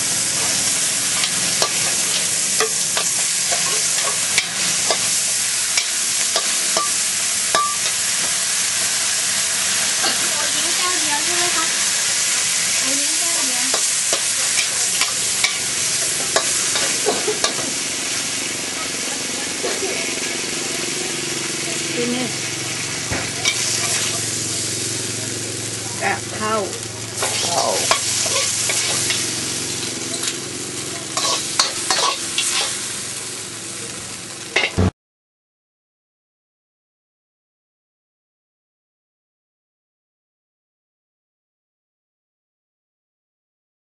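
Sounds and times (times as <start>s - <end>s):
pork sizzling in a wok: 0.0s - 34.9s
spatula scraping and knocking pan: 1.2s - 5.1s, 13.7s - 17.8s, 27.2s - 29.3s, 31.1s - 32.8s
spatula clacking against wok: 31.2s - 32.7s.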